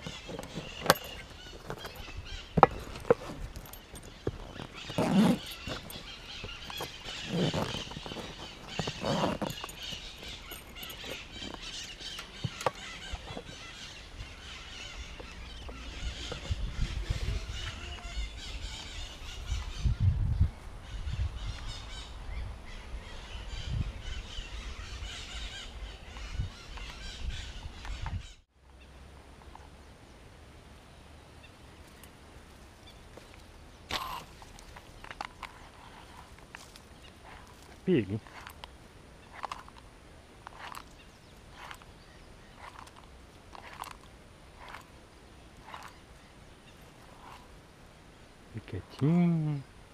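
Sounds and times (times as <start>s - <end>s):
handling noise: 0.0s - 18.1s, 31.8s - 47.6s
birds chirping: 0.0s - 49.9s.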